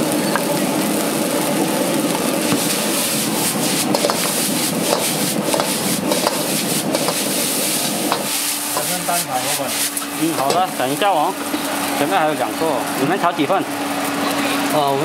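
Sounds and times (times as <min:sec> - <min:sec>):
frying sizzle: 0:00.0 - 0:15.0
metal ladle scraping a wok: 0:02.6 - 0:10.1.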